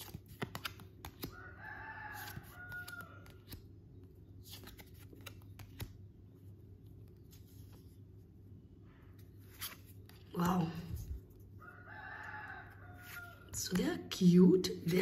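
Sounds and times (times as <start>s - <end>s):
cards being handled: 0.0s - 1.4s, 4.4s - 6.1s, 9.2s - 11.4s
rooster crowing: 1.3s - 3.4s, 11.6s - 13.6s.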